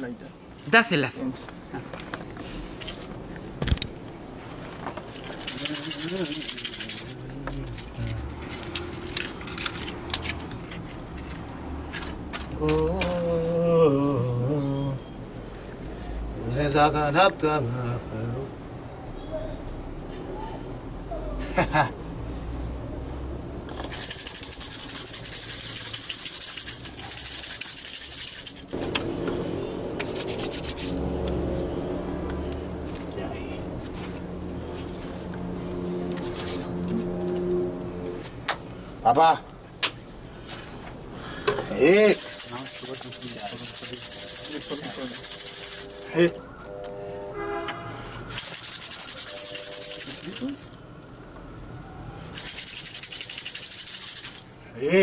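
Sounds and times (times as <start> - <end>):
hand rattle shaken rapidly: 2.8 - 3.1, 5.1 - 8.0, 23.7 - 28.9, 41.6 - 46.4, 48.1 - 50.9, 52.3 - 54.6.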